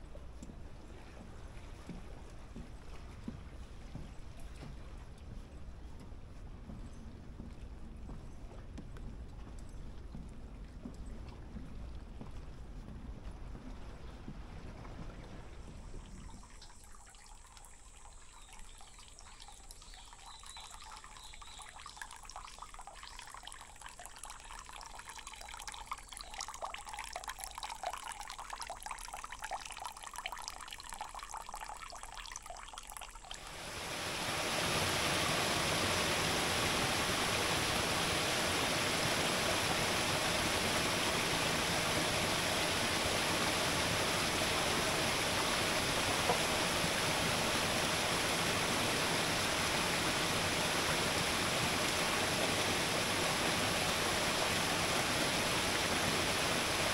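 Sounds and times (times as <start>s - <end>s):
water trickling into stone basin: 15.2s - 34.6s
stream cascading over rocks: 33.4s - 56.9s.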